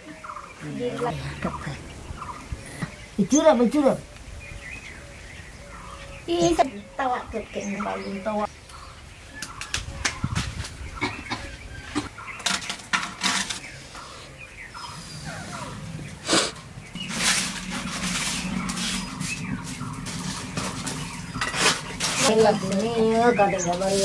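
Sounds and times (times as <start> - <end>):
leaf fire crackling: 12.4 - 24.0
dry leaves rustling and crackling: 16.6 - 24.0.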